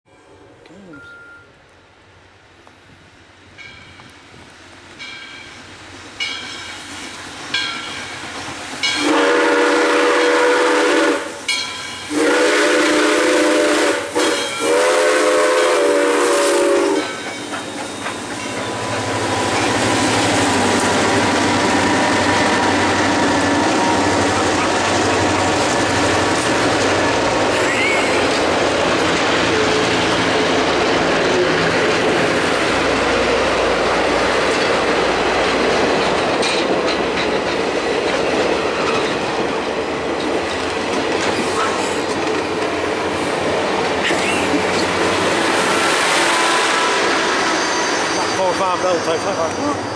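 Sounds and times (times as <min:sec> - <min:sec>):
train wheel clatter on rails: 0:03.6 - 0:10.1, 0:11.1 - 0:15.3, 0:16.4 - 0:49.9
locomotive horn: 0:09.0 - 0:11.4, 0:12.1 - 0:17.2.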